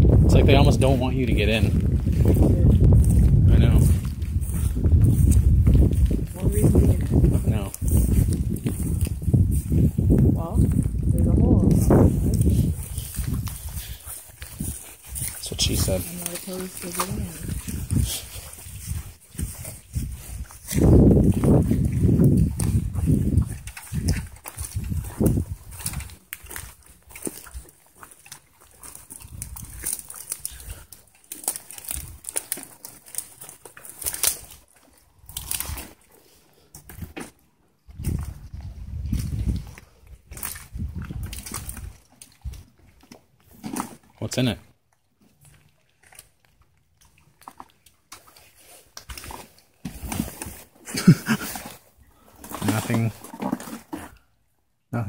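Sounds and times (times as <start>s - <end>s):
footsteps crunching through dry brush: 0.0s - 36.2s
camera handling rustling and scraping: 48.2s - 50.8s, 51.4s - 54.2s.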